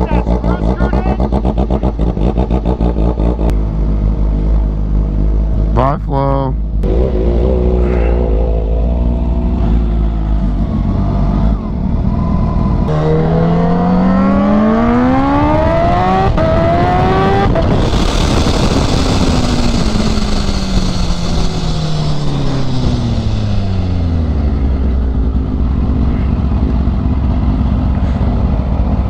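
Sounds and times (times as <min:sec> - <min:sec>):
motorcycle engine accelerating: 0:00.0 - 0:05.9, 0:06.6 - 0:29.0
loud wind rush: 0:06.9 - 0:27.3.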